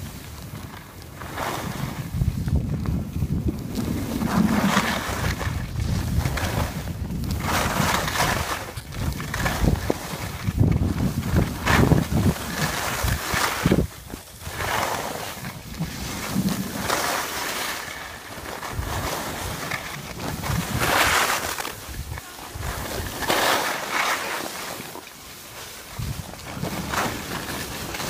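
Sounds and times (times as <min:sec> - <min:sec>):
wind rushing over microphone: 0:00.0 - 0:23.5, 0:25.8 - 0:28.0
skis scraping over packed snow: 0:00.0 - 0:28.0.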